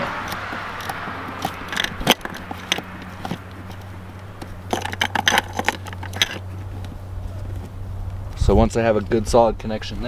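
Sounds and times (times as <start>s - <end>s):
hose fitting clicking and scraping: 0.0s - 7.0s.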